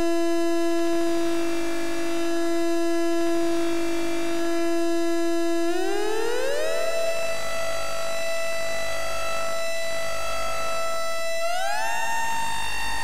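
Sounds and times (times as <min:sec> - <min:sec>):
electronic synth tone with reverb: 0:05.2 - 0:13.0.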